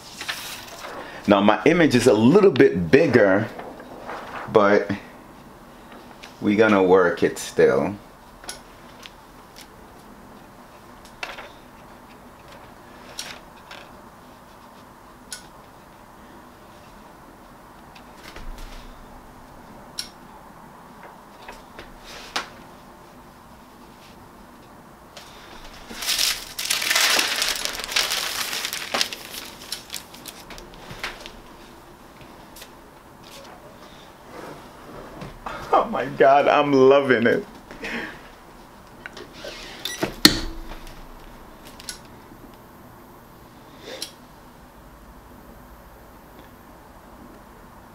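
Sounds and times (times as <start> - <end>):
paper sheet taps and rustles: 25.8 - 31.4.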